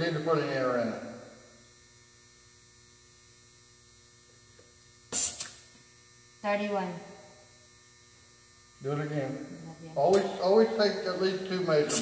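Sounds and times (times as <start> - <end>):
faint steady hum: 0.0 - 12.0
air hissing from tyre valve: 5.1 - 5.7.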